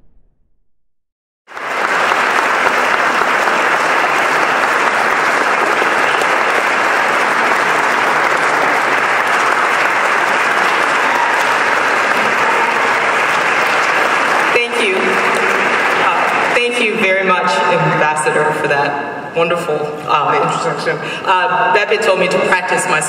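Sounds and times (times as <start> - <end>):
audience applauding: 1.5 - 16.7.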